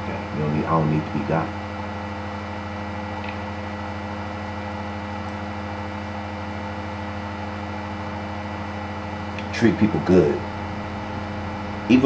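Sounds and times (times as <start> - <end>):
electrical hum: 0.0 - 12.0
constant hiss: 9.4 - 12.0.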